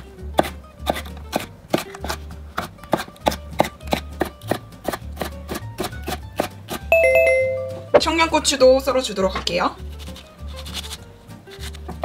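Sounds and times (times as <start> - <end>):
knife chopping on wooden board: 0.4 - 6.8.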